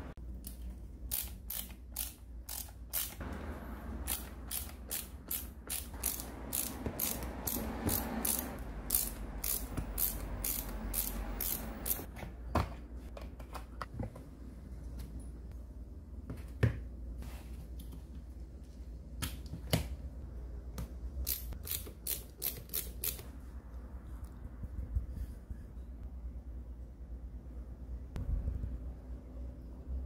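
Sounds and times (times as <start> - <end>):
ratcheting screwdriver clicking: 1.1 - 3.2, 4.1 - 12.1, 21.3 - 23.2.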